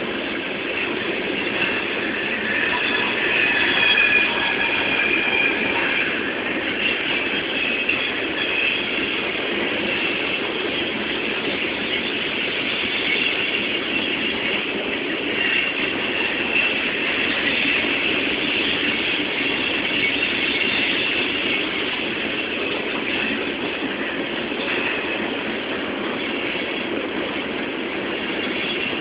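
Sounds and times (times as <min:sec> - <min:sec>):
faint high wheel squeal: 0:00.0 - 0:29.0
steel wheels rumbling on rail: 0:00.0 - 0:29.0.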